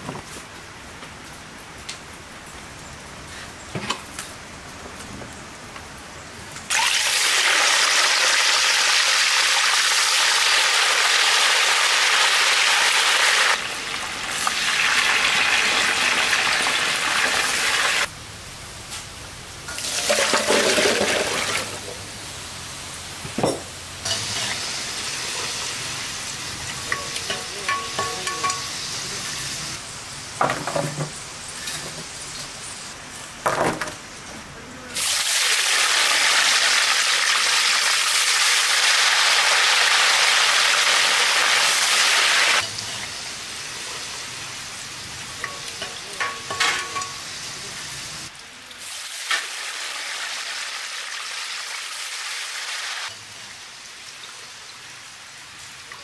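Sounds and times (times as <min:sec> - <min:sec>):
fries sizzling in hot oil: 0:06.5 - 0:34.3, 0:34.9 - 0:56.0
utensils and pans clinking: 0:19.7 - 0:21.9, 0:23.3 - 0:24.6, 0:26.6 - 0:28.8, 0:42.6 - 0:43.1, 0:45.4 - 0:47.3.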